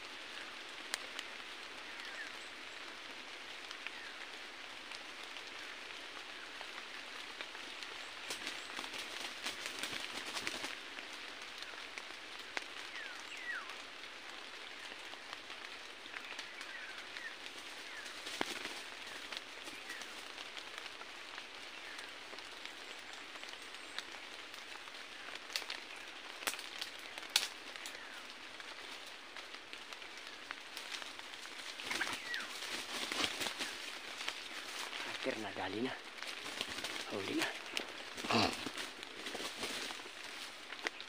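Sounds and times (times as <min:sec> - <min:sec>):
steady hiss: 0:00.0 - 0:41.0
sharp crackles and clicks: 0:14.9 - 0:41.0.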